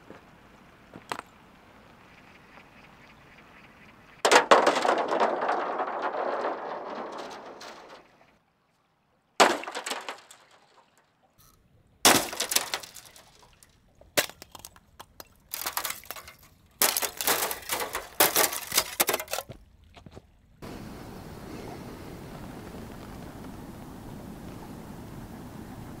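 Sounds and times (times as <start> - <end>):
hard objects clinking and clattering: 12.1 - 13.6, 14.2 - 19.6
steady hiss: 20.6 - 26.0.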